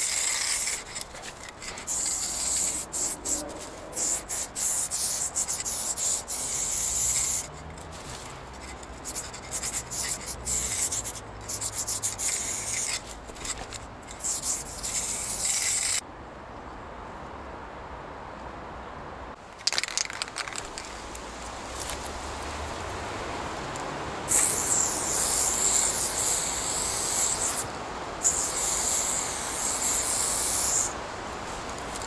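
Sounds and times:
spray paint hissing: 0.0 - 16.0, 24.3 - 31.0.

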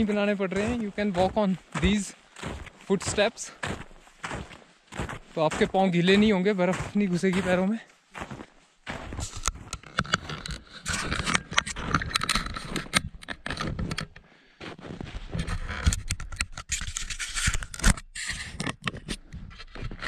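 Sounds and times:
footsteps crunching in snow: 0.0 - 15.7.

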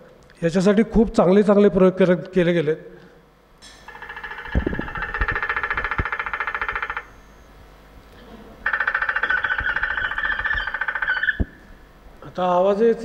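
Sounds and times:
woodpecker drumming over loudspeaker: 3.9 - 7.2, 8.6 - 11.6.

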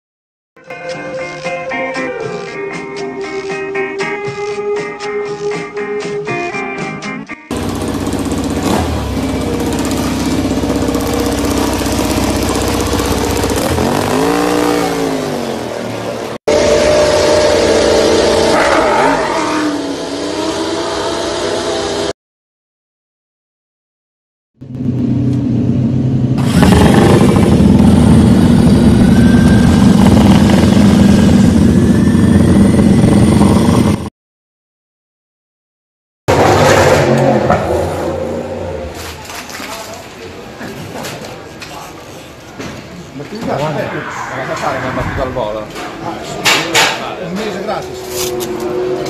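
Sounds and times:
motorcycle engine idling and revving: 7.5 - 22.1, 24.6 - 34.1, 36.3 - 39.2, 45.8 - 49.0.

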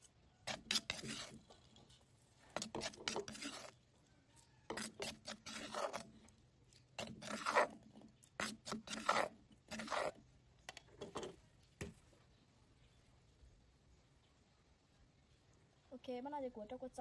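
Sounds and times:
spoon scraping clay mortar: 0.0 - 3.8, 4.6 - 10.2.

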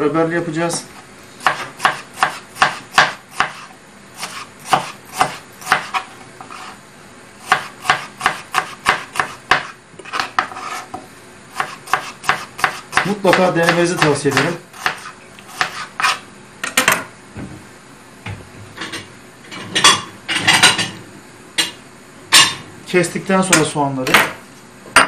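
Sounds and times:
knife slicing onion: 0.9 - 6.8, 7.4 - 16.2
knife tapping cutting board: 11.6 - 15.0.

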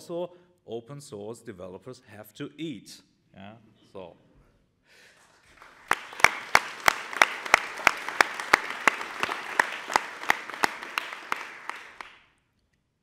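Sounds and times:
audience applauding: 5.4 - 12.2
loud sharp claps close by: 5.5 - 12.3.

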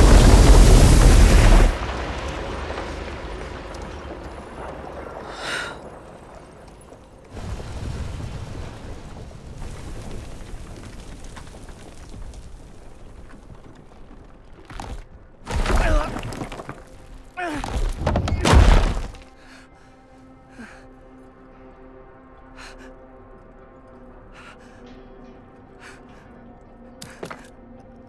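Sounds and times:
low rumble: 0.0 - 13.3
heavy crashes with shattering debris: 0.0 - 19.3
soft music: 19.1 - 28.0.

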